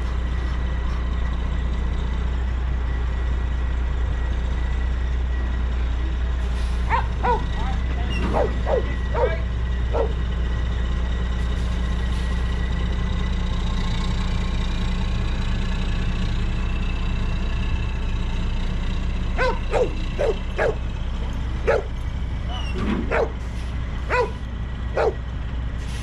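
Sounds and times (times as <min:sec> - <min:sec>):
diesel truck idling: 0:00.0 - 0:26.0
dog barking: 0:06.9 - 0:10.2, 0:19.4 - 0:20.8, 0:21.6 - 0:21.9, 0:22.5 - 0:23.4, 0:24.1 - 0:24.4, 0:25.0 - 0:25.2.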